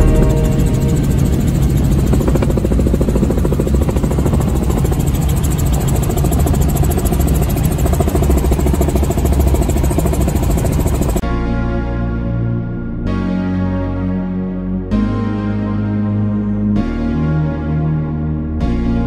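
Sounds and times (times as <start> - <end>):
helicopter engine and rotor: 0.0 - 11.2.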